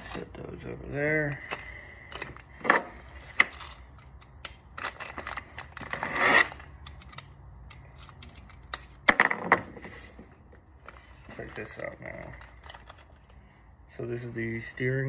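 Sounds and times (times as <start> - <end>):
parts clicking and knocking: 1.4 - 10.6.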